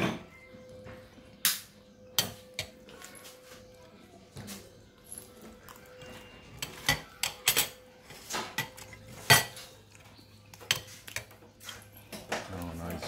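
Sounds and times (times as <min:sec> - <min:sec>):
spoons clinking on ceramic bowl: 0:05.1 - 0:09.9.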